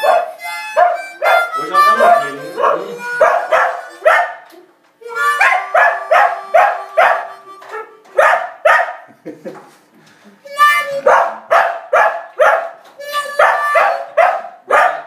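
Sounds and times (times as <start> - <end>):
dog howling barks: 0.0 - 4.4, 5.4 - 7.3, 13.4 - 15.0
harmonica note: 0.0 - 8.4, 10.4 - 11.6, 12.8 - 14.4.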